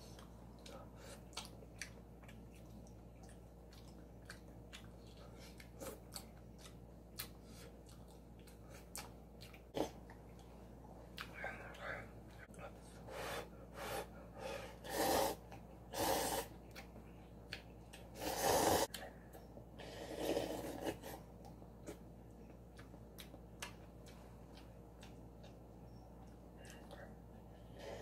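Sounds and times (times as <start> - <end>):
person slurping noodles: 18.2 - 18.9, 19.8 - 21.2.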